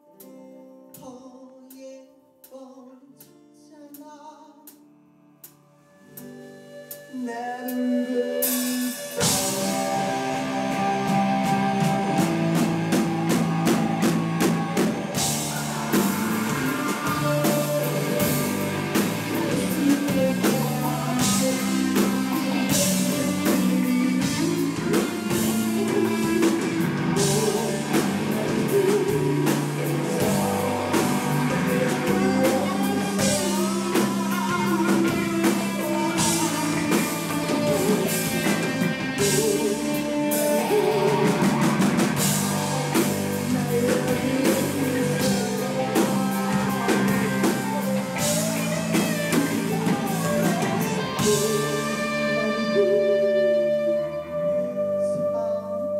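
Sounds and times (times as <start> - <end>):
electric guitar lead: 4.8 - 55.9
drum kit with cymbal hits: 8.4 - 52.8.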